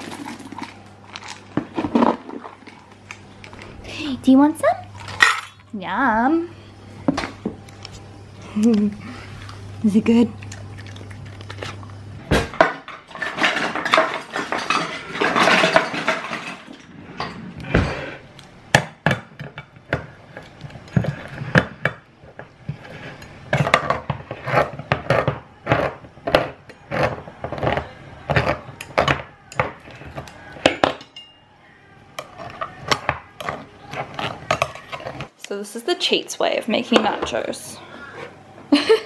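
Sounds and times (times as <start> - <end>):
metal tins clattering: 12.6 - 17.4.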